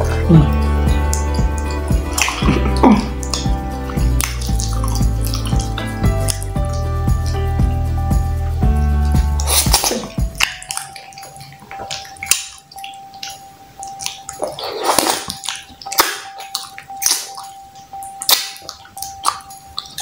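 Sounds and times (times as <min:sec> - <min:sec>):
chewing and lip smacks: 0:00.0 - 0:07.7, 0:09.0 - 0:20.0
faint steady tone: 0:10.8 - 0:20.0.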